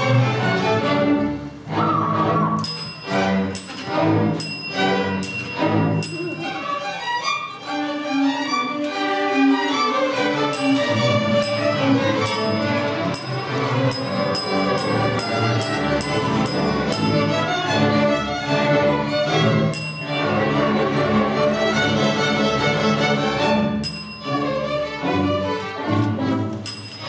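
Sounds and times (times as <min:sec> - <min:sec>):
string orchestra bowing: 0:00.0 - 0:27.0.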